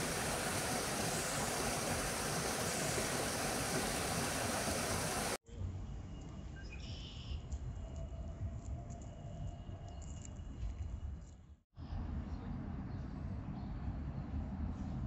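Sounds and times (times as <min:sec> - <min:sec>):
water spilling over small waterfall: 0:00.0 - 0:05.4.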